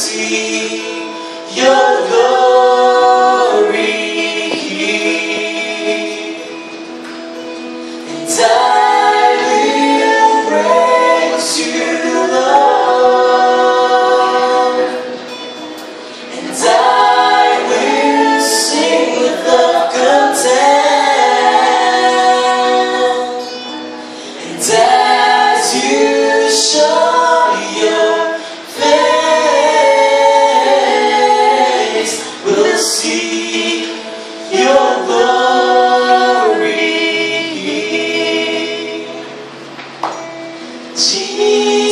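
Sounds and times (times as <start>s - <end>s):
man and woman singing duet: 0.0s - 6.8s, 8.0s - 39.5s, 40.7s - 41.9s
acoustic guitar: 0.0s - 41.9s.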